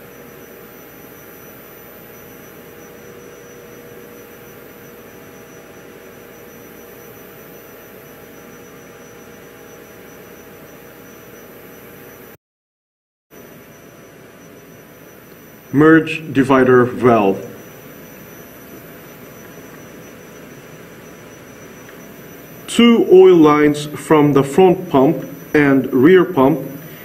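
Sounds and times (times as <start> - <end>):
faint steady tone: 0.0 - 12.4, 13.4 - 27.0
steady background hiss: 13.4 - 27.0.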